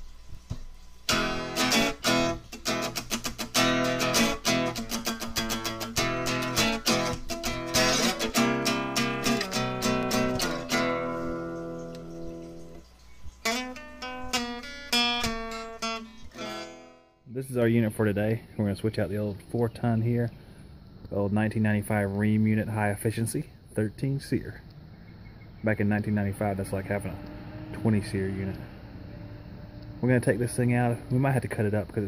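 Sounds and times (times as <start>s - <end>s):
acoustic guitar strumming: 1.1s - 12.8s, 13.4s - 17.2s.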